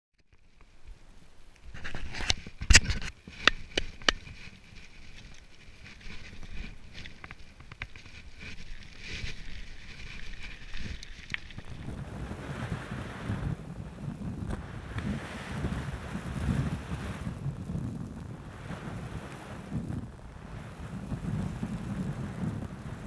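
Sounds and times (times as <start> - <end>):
mountain bike rattling on gravel: 2.5 - 23.0
wind on microphone: 7.7 - 23.0
low rumble: 11.6 - 23.0.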